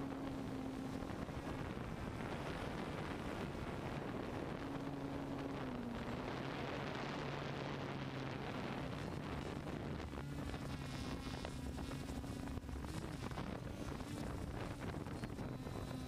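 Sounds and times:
drone motors humming: 0:00.0 - 0:16.0
wind rushing over microphone: 0:00.0 - 0:16.0.

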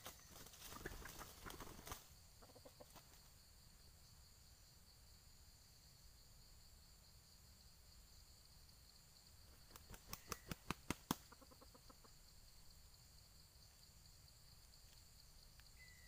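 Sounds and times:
rooster wing slaps: 0:09.6 - 0:11.5
high-pitched insect drone: 0:12.0 - 0:16.0.

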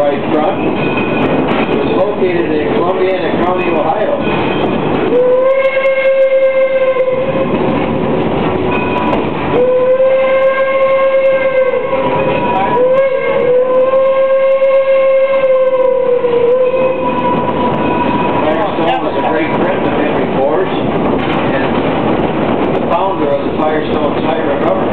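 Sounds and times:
moving train rumble: 0:00.0 - 0:24.9
steam locomotive whistle: 0:05.1 - 0:07.6, 0:08.8 - 0:18.6.

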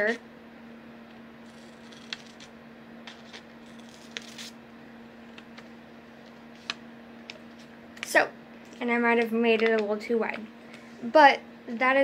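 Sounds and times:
steady low hum: 0:00.0 - 0:12.0
paper rustling: 0:01.5 - 0:02.5, 0:03.1 - 0:04.6, 0:05.3 - 0:07.7
scissors snipping paper: 0:01.5 - 0:02.5, 0:03.1 - 0:04.6.

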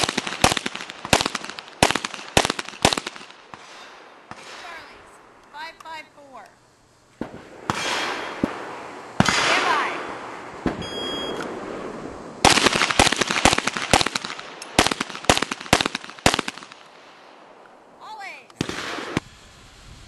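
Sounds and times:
handgun firing rapid shots: 0:00.0 - 0:03.3, 0:12.5 - 0:16.8
sharp bangs with rolling echoes: 0:00.0 - 0:04.9, 0:07.2 - 0:10.8, 0:11.5 - 0:17.5, 0:18.6 - 0:19.2
shot timer beep: 0:10.8 - 0:11.5.

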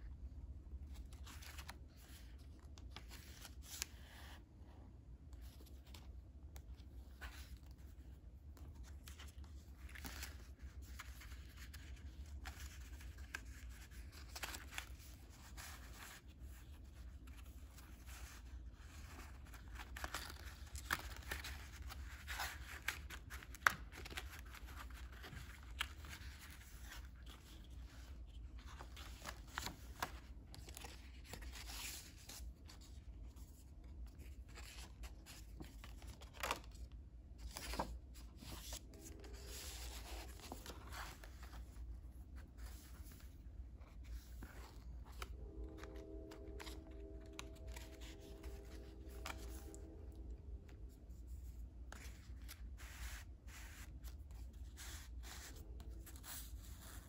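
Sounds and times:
heavy paper rustling and scraping: 0:37.4 - 0:50.0.

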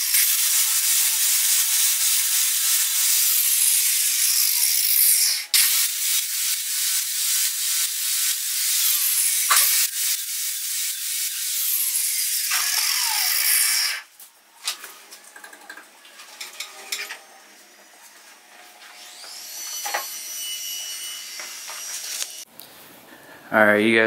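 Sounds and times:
angle grinder grinding metal: 0:00.0 - 0:14.1, 0:18.9 - 0:22.5.

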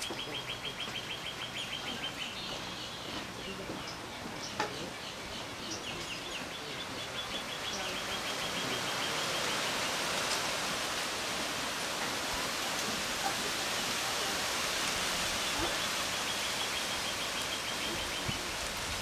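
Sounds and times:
steady hiss: 0:05.2 - 0:19.0.

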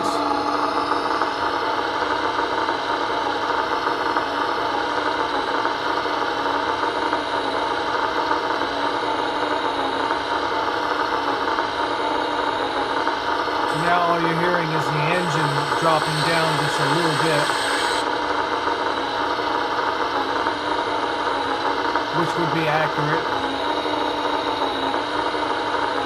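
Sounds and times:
simulated diesel engine from loudspeaker: 0:00.0 - 0:01.9, 0:13.7 - 0:18.0, 0:21.5 - 0:23.7.

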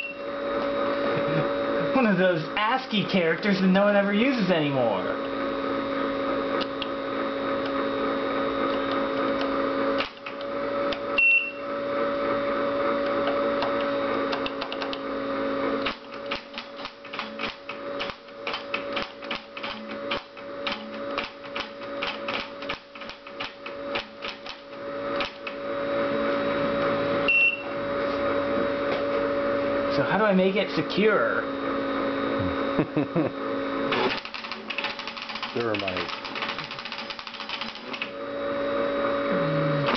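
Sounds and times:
short high beep: 0:00.0 - 0:00.2, 0:11.2 - 0:11.6, 0:27.3 - 0:27.7
cooling fan hum: 0:00.0 - 0:39.9.

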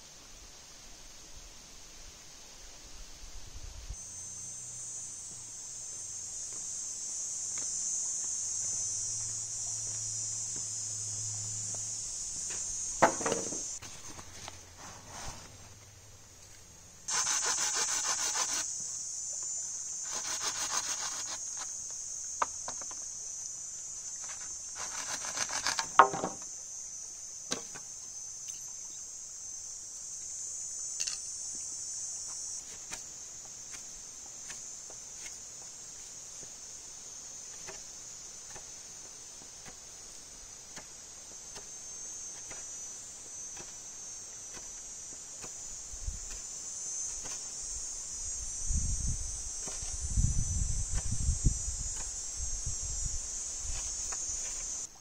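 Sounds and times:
high-pitched insect buzzing: 0:03.9 - 0:14.6, 0:17.1 - 0:54.9
rustling and scraping: 0:12.4 - 0:18.7.

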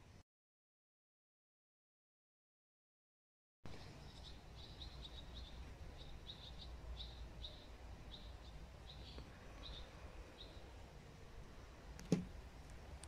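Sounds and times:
small bird chirping: 0:03.7 - 0:10.9.

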